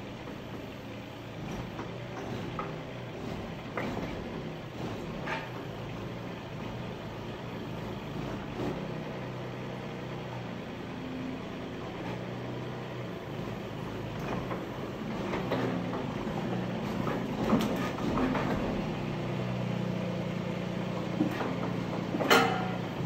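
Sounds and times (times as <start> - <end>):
excavator engine running: 0.0 - 23.0
sharp metal knocks and clanks: 21.2 - 23.0.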